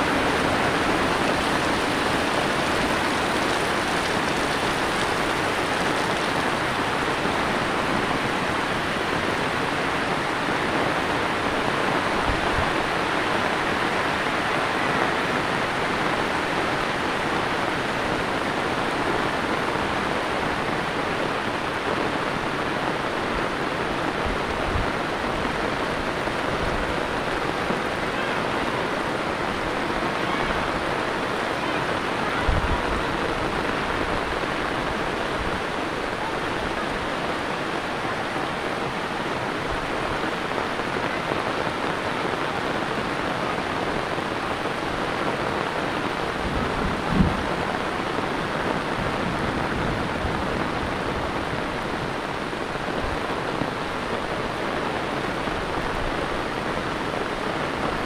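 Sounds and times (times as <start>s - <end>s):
runoff water running: 0.0s - 21.0s
heavy rain hissing: 0.0s - 58.0s.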